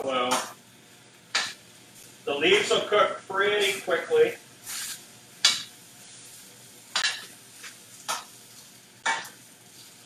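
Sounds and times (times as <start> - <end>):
faint steady sizzle: 0.0 - 10.0
tongs clattering in a pan: 4.7 - 5.8, 6.9 - 10.0.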